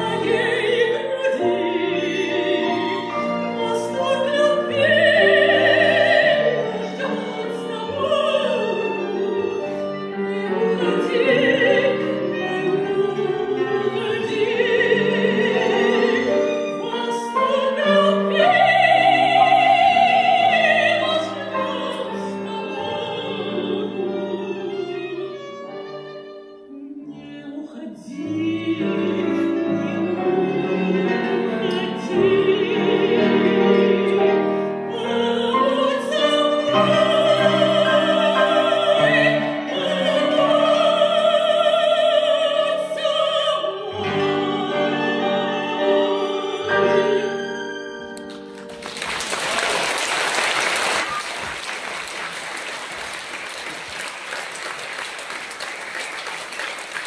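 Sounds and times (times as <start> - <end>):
soprano singing with vibrato: 0.0 - 25.7, 26.4 - 48.2
violin: 0.0 - 49.3
piano: 0.0 - 57.0
audience applauding: 48.5 - 57.0.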